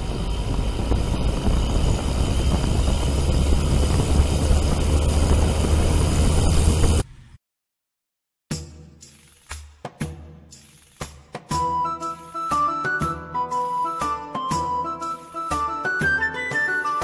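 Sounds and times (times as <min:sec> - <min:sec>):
drone motors and propellers: 0:00.0 - 0:07.4.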